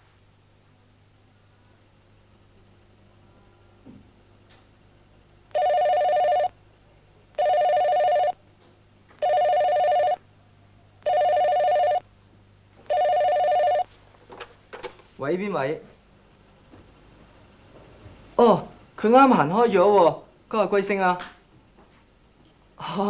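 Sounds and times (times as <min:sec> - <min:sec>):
telephone ringing: 0:05.5 - 0:06.5, 0:07.4 - 0:08.4, 0:09.2 - 0:10.2, 0:11.0 - 0:12.0, 0:12.8 - 0:13.9.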